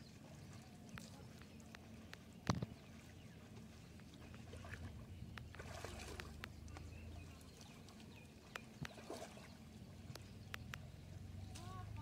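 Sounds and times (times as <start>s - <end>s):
low steady rumble: 0.0s - 12.0s
water sloshing and splashing: 0.0s - 12.0s
faint ticks: 10.1s - 10.9s.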